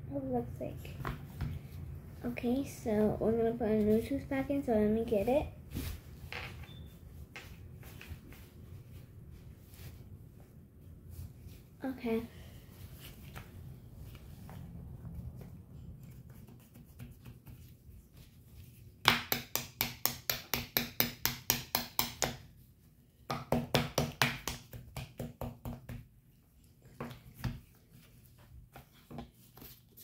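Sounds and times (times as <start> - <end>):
soft handling noise: 3.7 - 16.5.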